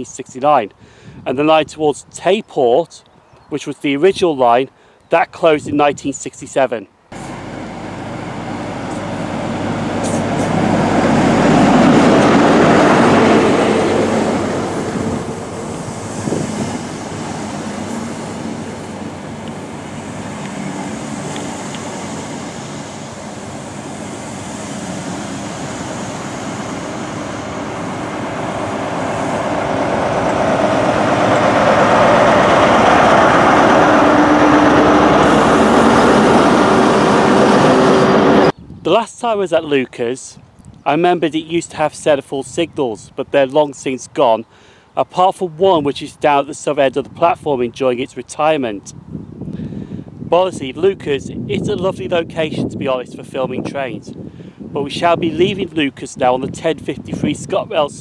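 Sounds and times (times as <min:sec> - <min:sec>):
diesel engine humming: 0:07.1 - 0:38.5
train coaches rumbling past: 0:07.2 - 0:38.5.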